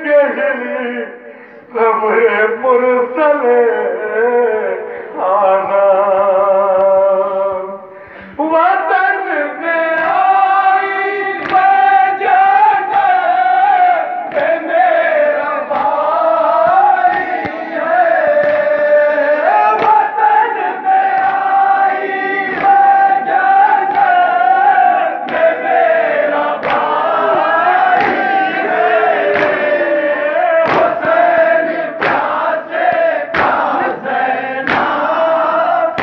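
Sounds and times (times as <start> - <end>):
men chanting in unison: 0.0 - 36.0
hands slapping chests: 11.4 - 12.0, 14.2 - 14.7, 15.6 - 20.2, 20.9 - 24.3, 25.1 - 25.8, 26.4 - 29.9, 30.6 - 35.4.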